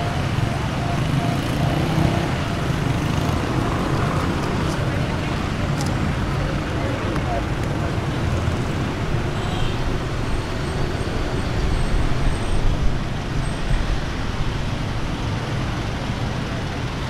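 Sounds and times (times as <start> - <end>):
road noise: 0.0 - 17.0
vehicles passing: 0.0 - 17.0.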